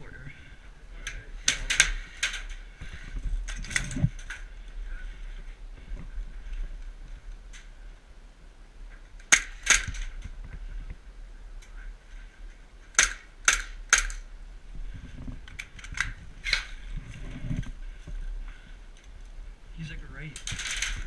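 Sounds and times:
low shuffling: 14.5 - 21.0.

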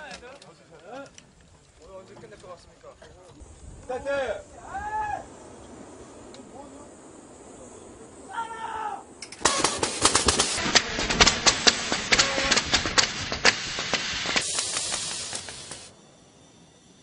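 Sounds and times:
pyrotechnic charges crackling: 9.1 - 16.4.

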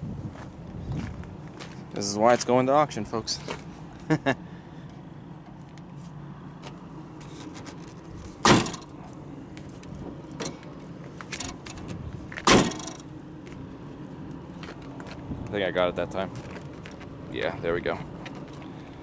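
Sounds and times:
car hood slamming: 8.4 - 8.9, 12.4 - 13.0.

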